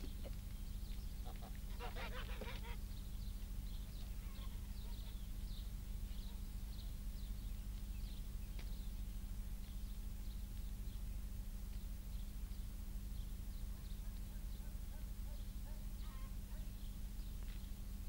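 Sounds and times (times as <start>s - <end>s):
small birds chirping: 0.0s - 18.0s
geese honking: 1.2s - 2.8s.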